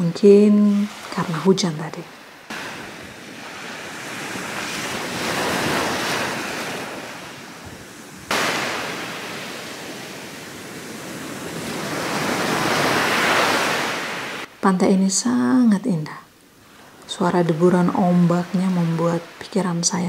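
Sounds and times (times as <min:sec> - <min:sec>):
surf breaking on beach: 0:02.4 - 0:14.5.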